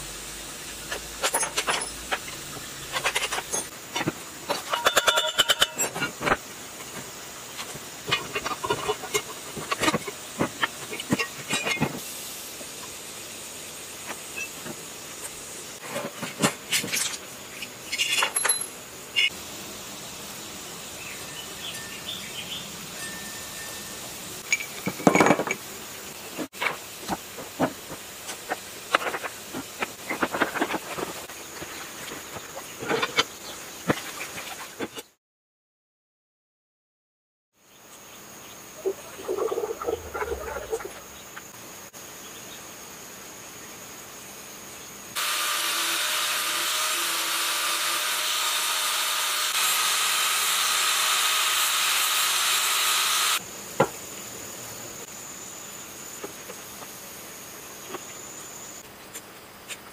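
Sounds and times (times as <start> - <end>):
steady hiss: 0.0 - 4.8, 5.8 - 34.6, 37.6 - 59.9
hand tools clinking on metal: 1.2 - 2.2, 4.5 - 6.1, 17.9 - 18.8.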